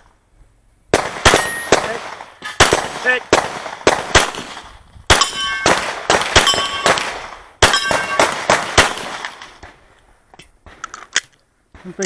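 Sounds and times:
pistol shots: 0.9s - 9.6s
steel targets clanging: 1.3s - 2.7s, 5.1s - 8.4s.

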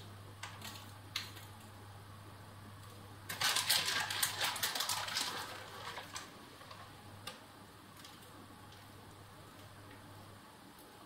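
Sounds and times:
faint steady hum: 0.0s - 11.0s
grated cheese crackling and rustling: 3.3s - 7.1s, 7.9s - 10.0s.

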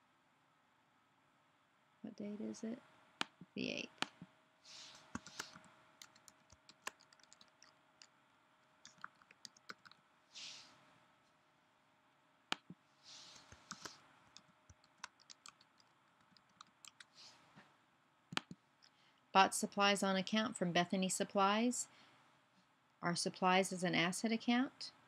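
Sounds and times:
soft hisses: 4.7s - 5.6s, 10.3s - 10.8s, 13.0s - 14.0s
keyboard typing: 4.9s - 8.1s, 8.8s - 10.0s, 12.5s - 17.2s, 18.3s - 18.6s.

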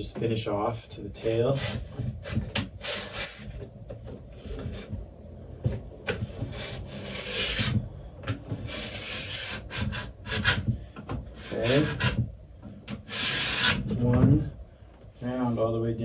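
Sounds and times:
edge tuner scraping steel: 1.2s - 5.0s, 6.0s - 10.7s, 11.4s - 14.5s.

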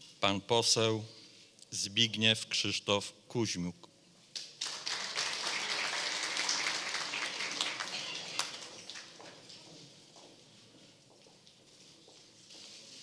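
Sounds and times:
audience applauding: 4.6s - 9.6s.

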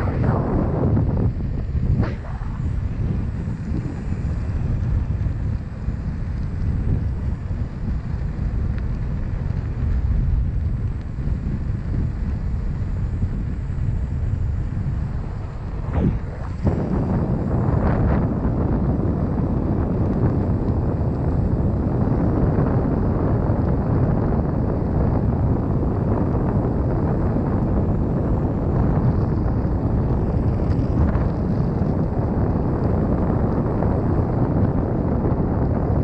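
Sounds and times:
tyre noise on asphalt: 0.0s - 23.1s
wind buffeting microphone: 0.0s - 36.0s.

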